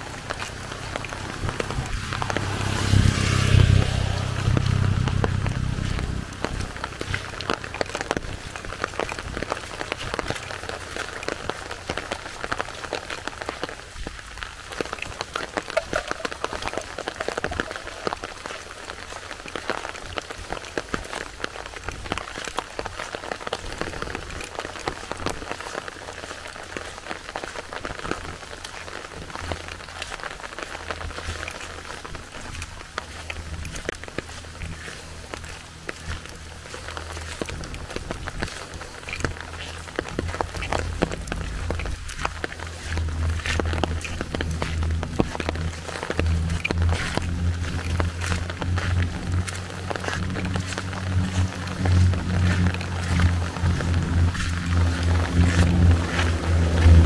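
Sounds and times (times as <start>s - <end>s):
low rumble: 0.0s - 19.4s, 32.9s - 57.0s
rain pattering: 0.0s - 57.0s.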